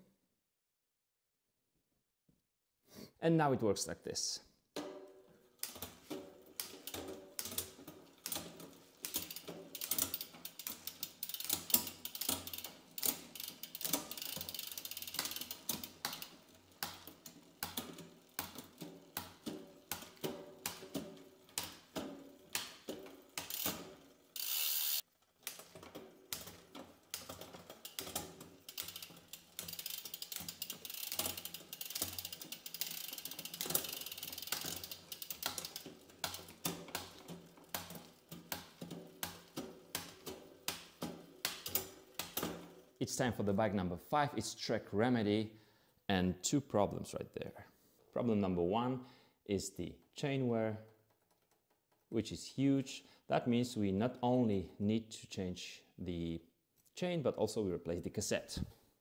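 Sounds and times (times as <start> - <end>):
bicycle chain clicking and rattling: 4.8 - 43.0, 50.8 - 52.0.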